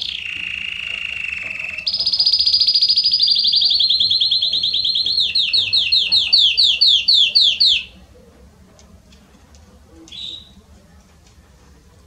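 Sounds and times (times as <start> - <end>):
canary trilling: 0.0 - 8.0, 10.1 - 10.6.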